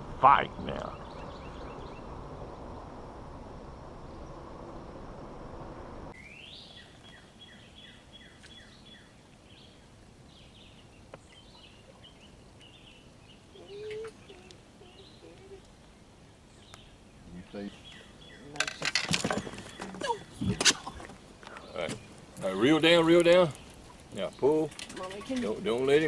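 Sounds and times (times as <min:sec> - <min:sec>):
songbirds whistling and chirping: 0:06.2 - 0:15.8, 0:16.5 - 0:18.6.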